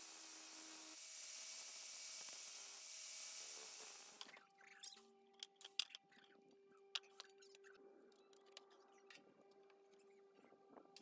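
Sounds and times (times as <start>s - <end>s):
small clicks and knocks: 4.2s - 10.0s.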